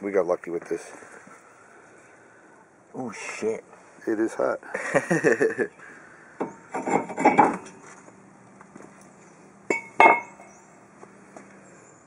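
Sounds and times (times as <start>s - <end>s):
metal scraping and clattering: 6.8s - 7.8s
sharp metallic clanks: 9.7s - 10.5s.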